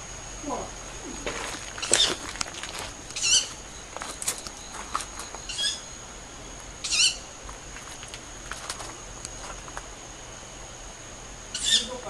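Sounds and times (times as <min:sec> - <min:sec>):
high-pitched bird calls: 0:01.7 - 0:02.4, 0:03.1 - 0:06.1, 0:06.8 - 0:07.4, 0:11.5 - 0:12.0.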